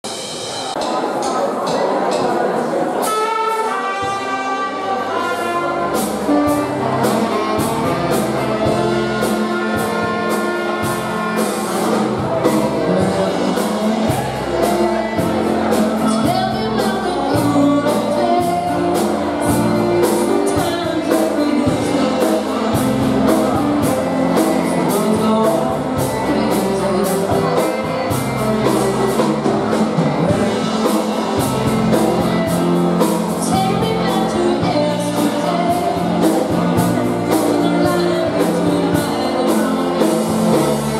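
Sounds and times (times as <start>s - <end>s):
polka band playing a waltz: 0.0s - 40.9s
woman singing: 12.4s - 32.4s, 33.4s - 40.9s.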